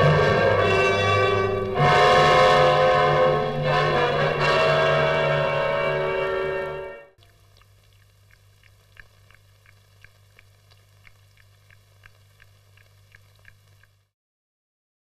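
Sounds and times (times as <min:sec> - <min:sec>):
faint low hum: 0:07.2 - 0:14.1
soft ticks: 0:07.5 - 0:14.0.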